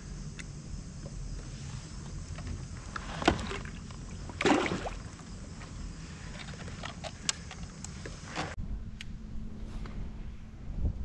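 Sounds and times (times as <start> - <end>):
fish splashing into water: 4.3 - 5.2.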